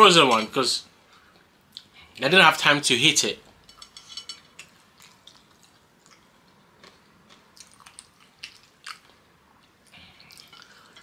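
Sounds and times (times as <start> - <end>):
person chewing wetly: 4.6 - 11.0.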